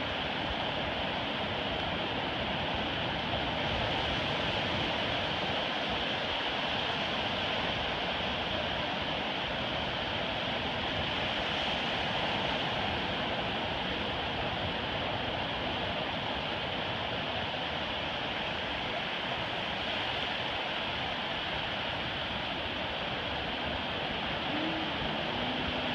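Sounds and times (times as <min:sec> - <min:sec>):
ocean surf washing up beach: 0:00.0 - 0:25.9.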